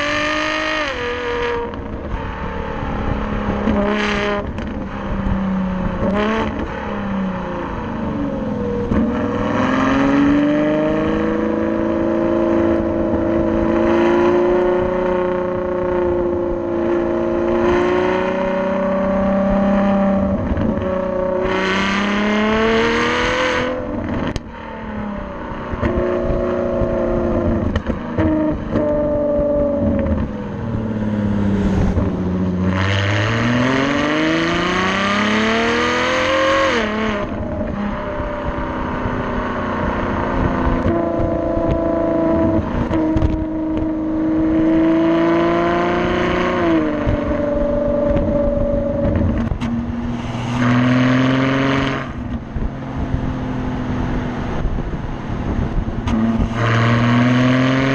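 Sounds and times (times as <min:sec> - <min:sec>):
car exhaust revving with upshifts: 0:00.0 - 0:57.9.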